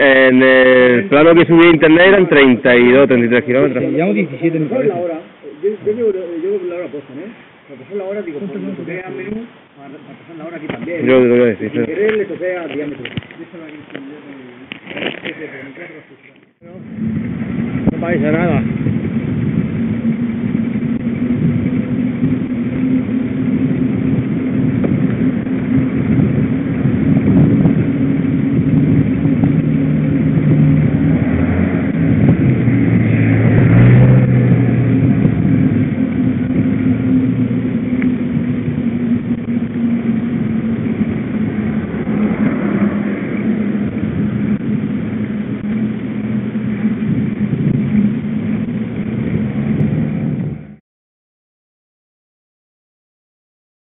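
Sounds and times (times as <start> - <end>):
tyres rolling on asphalt: 0.0 - 50.8
wind over microphone: 14.7 - 50.8.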